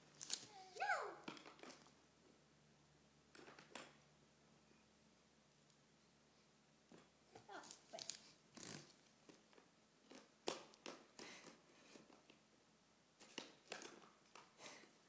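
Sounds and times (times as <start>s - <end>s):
book and papers rustling: 0.0s - 0.8s, 6.9s - 10.3s.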